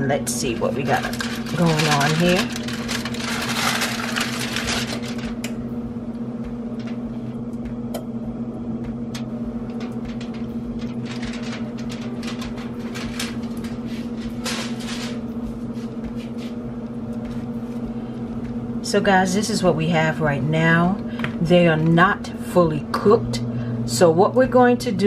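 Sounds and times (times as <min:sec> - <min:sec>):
steady motor hum: 0:00.0 - 0:25.0
aluminium foil crinkling: 0:00.3 - 0:05.5, 0:09.7 - 0:15.3.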